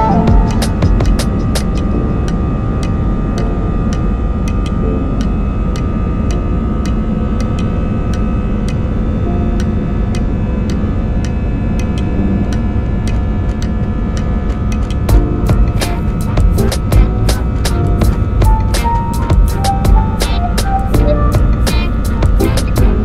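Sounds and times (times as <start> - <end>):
jet engines rumbling and whining: 0.0 - 23.0.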